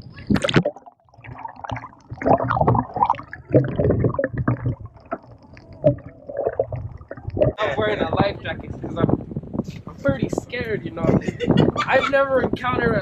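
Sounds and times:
muffled underwater gurgling: 0.0 - 13.0.

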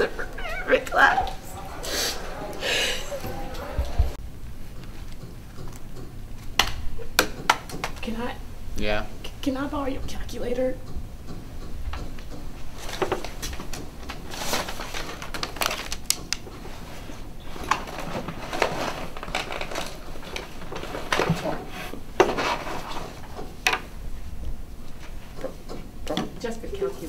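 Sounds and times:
paper rustling: 12.8 - 23.3.

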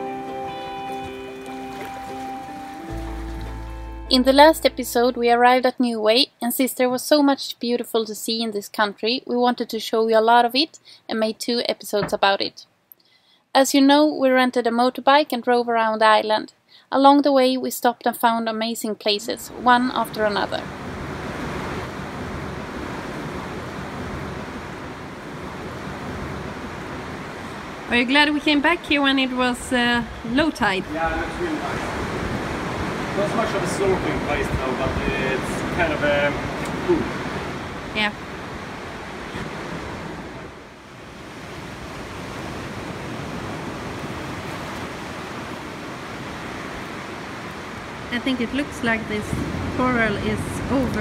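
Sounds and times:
ocean surf: 0.0 - 5.3, 19.2 - 51.0
wind: 0.0 - 51.0.

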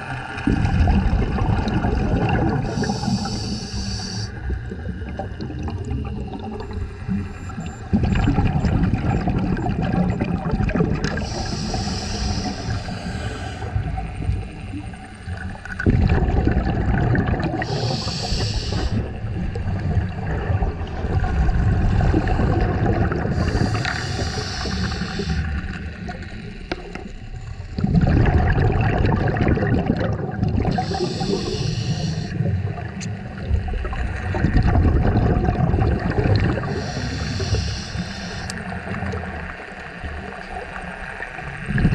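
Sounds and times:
exhaled bubbles gurgling: 0.0 - 41.9
regulator inhale hissing: 2.6 - 4.6, 11.1 - 14.6, 17.6 - 19.2, 23.3 - 26.7, 30.7 - 32.6, 36.6 - 38.8.

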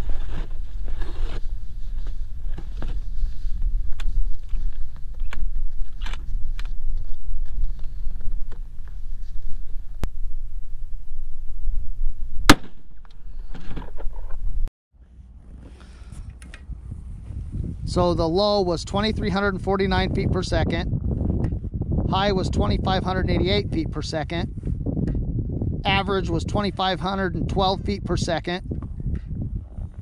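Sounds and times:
wind rumble on microphone: 0.0 - 30.0
rifle shot: 12.4 - 13.1.

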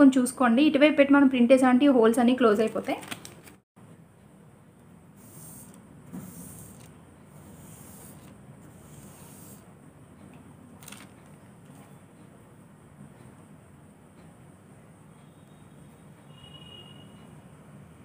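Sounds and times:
tracing paper rustling against fabric: 5.2 - 9.6.

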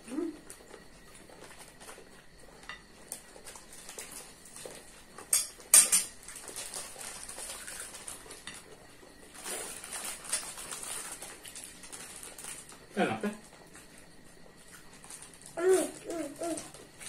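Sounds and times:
spoon tapping and scraping plates: 5.3 - 6.1.

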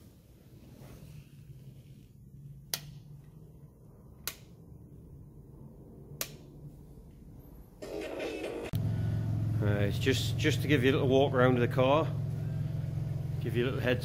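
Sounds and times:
rocker switch clicks: 4.2 - 4.6, 6.2 - 6.4.

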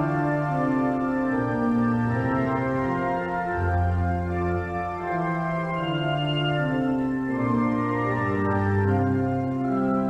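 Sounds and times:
organ playing held chords: 0.0 - 10.0.

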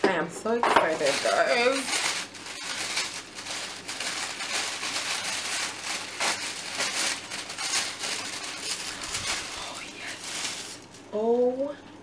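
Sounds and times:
tissue paper rustling: 0.8 - 11.0.

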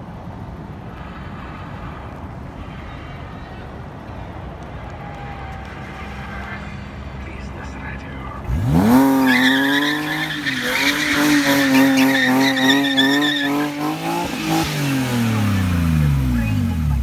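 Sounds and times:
car engine revving hard: 8.5 - 16.4
tyres squealing: 8.7 - 14.6.

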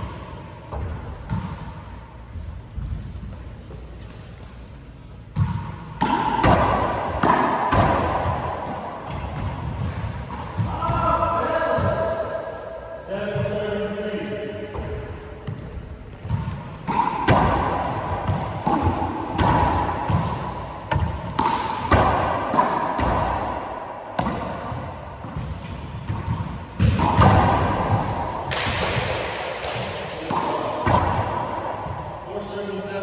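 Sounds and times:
sneaker squeaks on hardwood: 7.4 - 8.0.

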